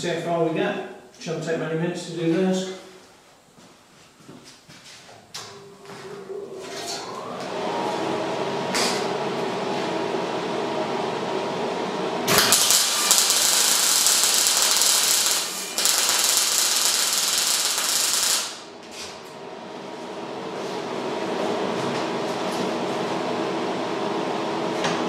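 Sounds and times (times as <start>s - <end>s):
motor hum: 5.3s - 20.5s
electric arc welding crackle: 12.3s - 18.7s.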